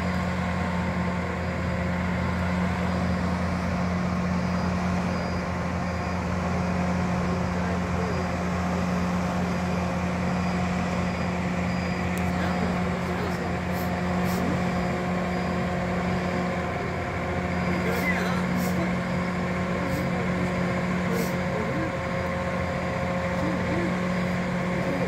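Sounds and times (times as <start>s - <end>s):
crane diesel engine running: 0.0s - 25.0s.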